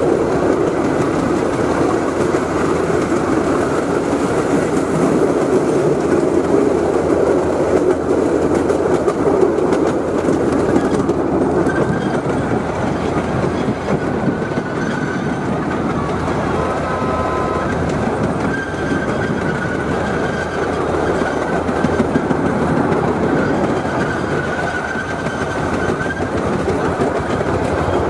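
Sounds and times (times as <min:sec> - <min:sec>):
light clicking of train: 0:00.0 - 0:28.0
miniature train running on track: 0:00.0 - 0:28.0.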